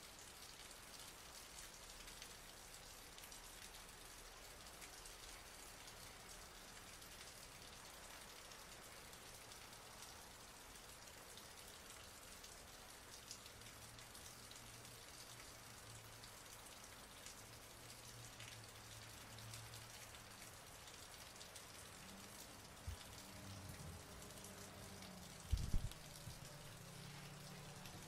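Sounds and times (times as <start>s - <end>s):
rain falling steadily: 0.0s - 28.0s.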